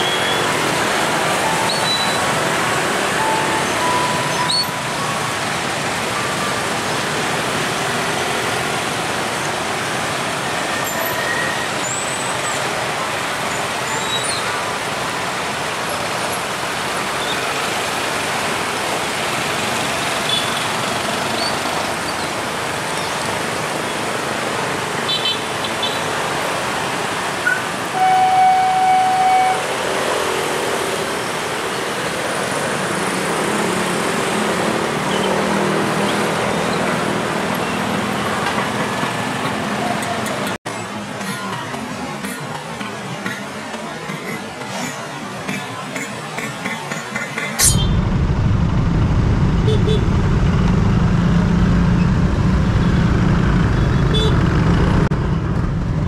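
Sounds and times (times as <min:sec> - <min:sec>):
road traffic: 0:00.0 - 0:56.0
vehicle horn toot: 0:27.9 - 0:29.7.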